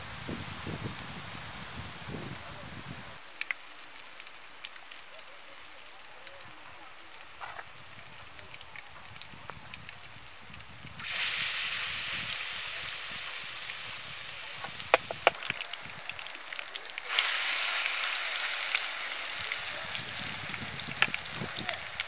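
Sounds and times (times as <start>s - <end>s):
oil sizzling in a frying pan: 9.0s - 22.0s
sharp oil pops: 14.7s - 15.6s.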